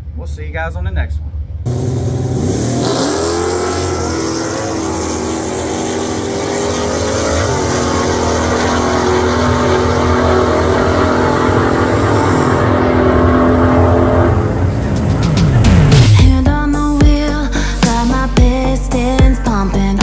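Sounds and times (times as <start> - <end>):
truck engine at full throttle: 1.6 - 16.4.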